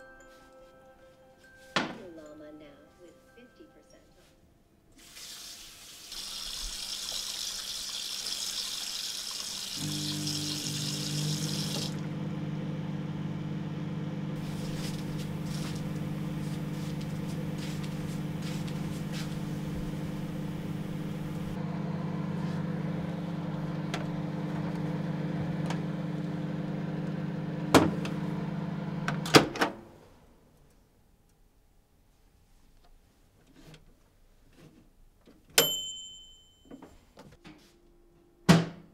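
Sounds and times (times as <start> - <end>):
tap water running: 5.0 - 12.2, 14.4 - 21.6
microwave oven humming: 9.8 - 30.0.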